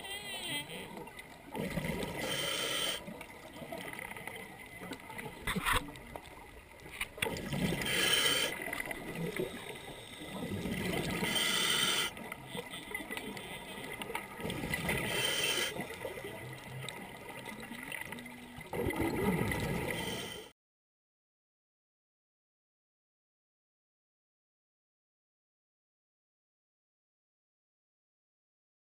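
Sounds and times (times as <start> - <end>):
gurgling bubbles: 0.9 - 20.4
hissing regulator breaths: 2.1 - 3.1, 7.8 - 12.2, 14.8 - 15.9, 19.9 - 20.5.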